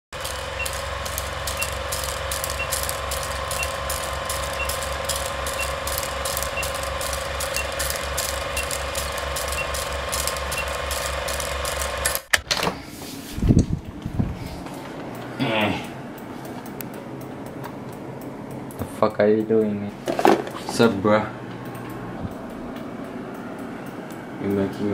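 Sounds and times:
film projector clatter: 0.2 - 12.3.

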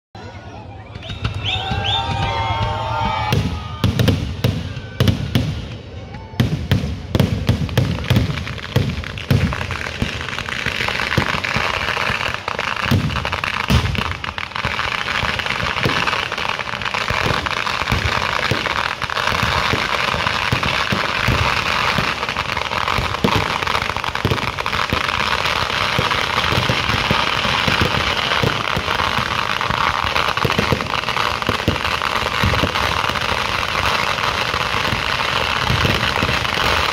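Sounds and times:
fireworks bangs and crackling: 0.3 - 36.9.

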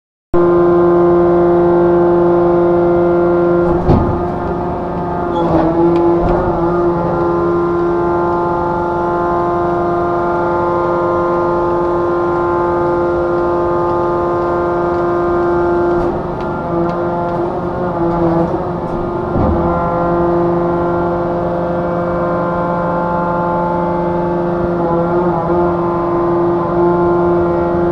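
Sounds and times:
hydraulic rig humming: 0.4 - 27.9
short metallic knocks: 3.6 - 9.6, 15.8 - 20.5.

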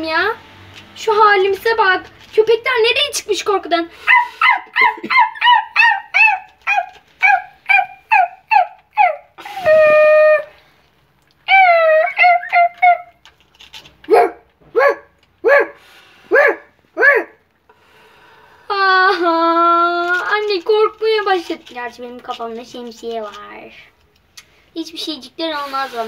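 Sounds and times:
puppies yipping and barking: 4.0 - 10.3, 11.5 - 14.3
puppy whining: 4.0 - 10.6, 11.5 - 13.2.

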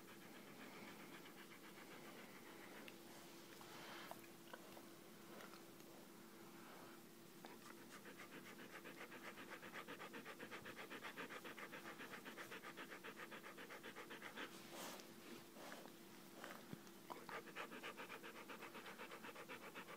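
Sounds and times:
dog panting quickly: 0.0 - 3.0, 7.5 - 19.9.

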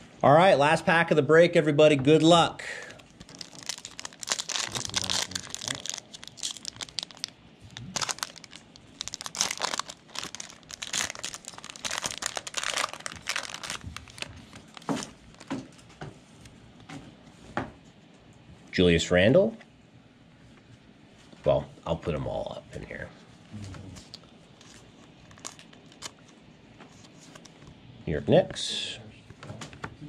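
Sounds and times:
wrapper crinkling and tearing: 3.0 - 15.6, 24.0 - 26.3.

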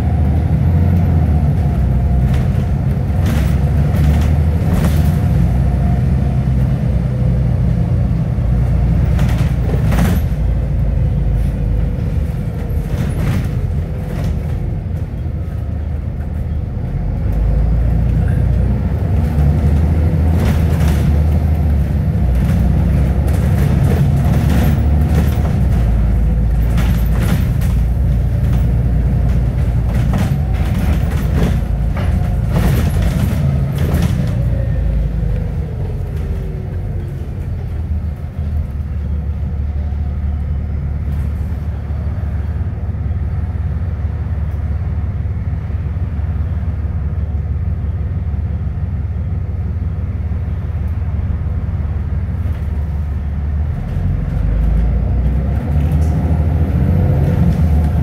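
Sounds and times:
bus engine and road noise: 0.0 - 58.0
sharp knocks and rattles: 22.2 - 34.6.

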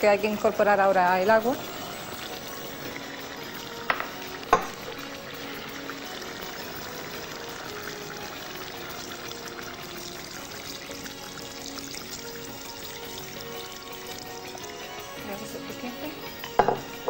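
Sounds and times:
stew sizzling and bubbling: 0.0 - 17.0
water pouring from jug: 0.1 - 17.0
sharp knocks: 3.9 - 4.8.

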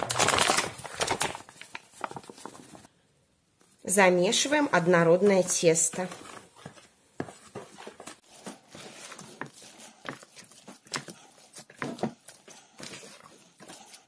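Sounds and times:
hands mixing dough: 3.9 - 14.0.

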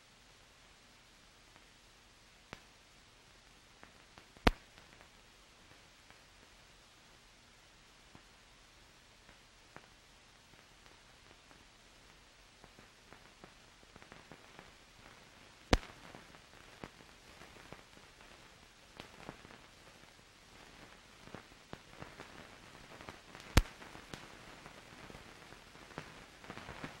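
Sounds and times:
film soundtrack hiss and crackle: 0.0 - 27.0
loud pops: 4.4 - 4.9, 15.7 - 17.8, 23.0 - 24.3.

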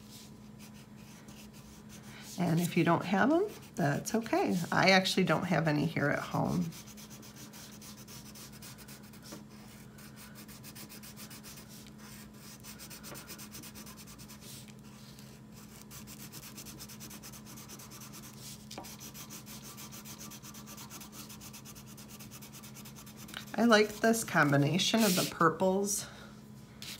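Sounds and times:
crayon scribbling on paper: 6.4 - 25.5.

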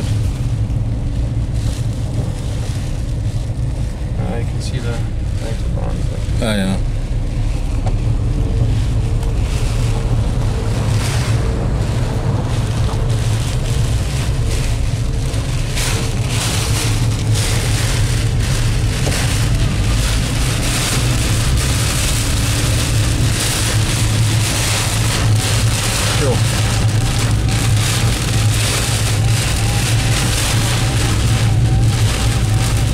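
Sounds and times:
car engine and tyres drone: 0.0 - 32.9
heavy rain on car roof: 0.0 - 32.9.

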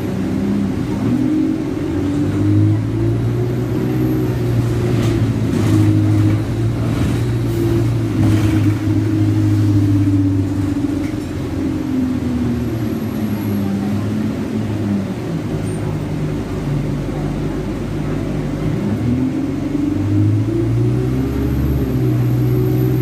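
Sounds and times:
bus diesel engine: 0.0 - 23.0.

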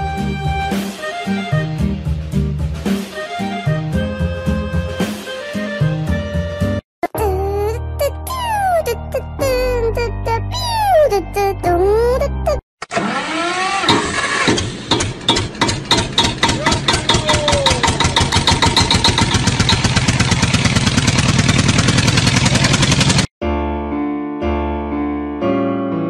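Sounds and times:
engine starting and revving: 12.8 - 23.3.

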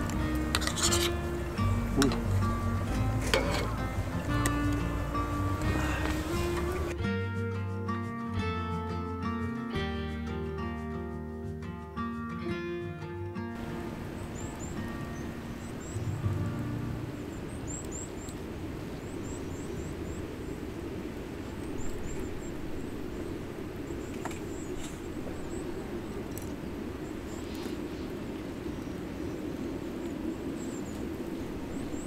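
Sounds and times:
sharp crackles: 0.0 - 7.0, 13.6 - 32.0
low outdoor rumble: 0.0 - 10.9, 11.5 - 32.0.

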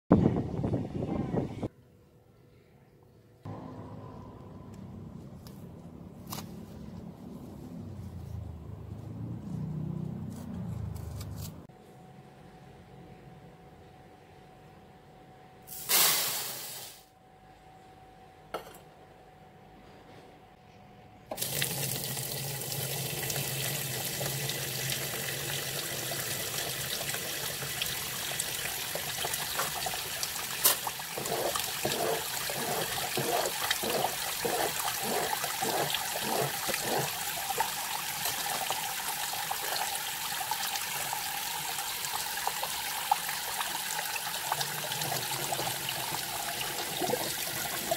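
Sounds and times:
tap water running into tub: 21.3 - 47.9.

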